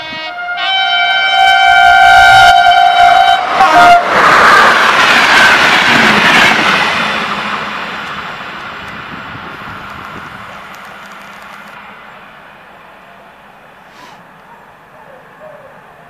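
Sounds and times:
train horn long blast: 0.0s - 4.3s
train rushing past: 0.0s - 16.0s.

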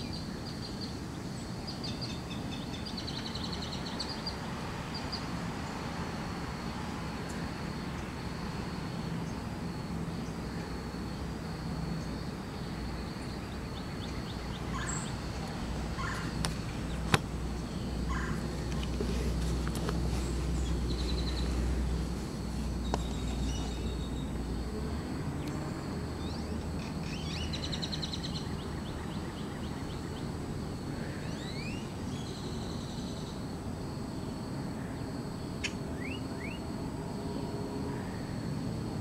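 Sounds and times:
small birds chirping: 13.1s - 24.4s.

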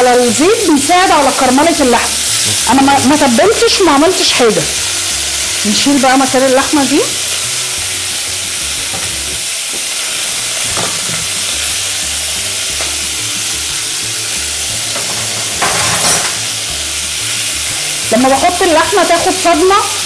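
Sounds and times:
meat sizzling in hot oil: 0.0s - 20.0s.

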